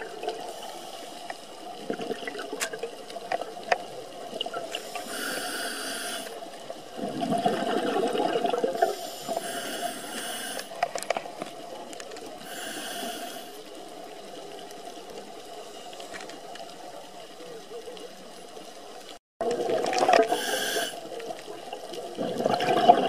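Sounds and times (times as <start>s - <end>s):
exhaled bubbles bursting: 1.8s - 2.6s, 6.9s - 9.0s, 19.4s - 20.4s, 22.2s - 23.0s
diver breathing through regulator: 4.8s - 6.4s, 8.7s - 10.8s, 12.4s - 13.6s, 20.2s - 21.0s.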